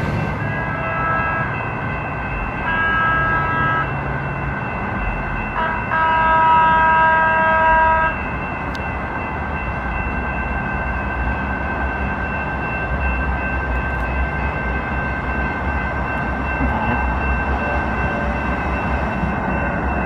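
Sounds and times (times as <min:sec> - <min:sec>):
level crossing warning bells: 0:00.0 - 0:20.0
low rumble of train: 0:00.0 - 0:20.0
trolley horn blasts: 0:00.4 - 0:01.6, 0:02.6 - 0:04.0, 0:05.6 - 0:08.2.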